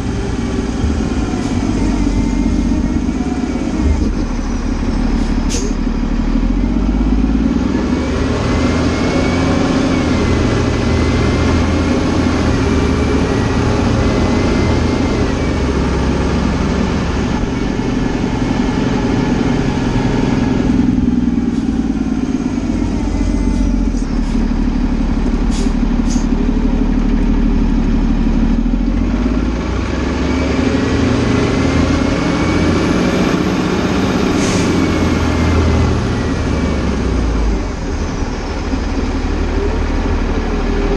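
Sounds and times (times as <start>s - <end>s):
drivetrain whine: 0.0s - 40.9s
fire engine diesel engine running: 0.0s - 40.9s.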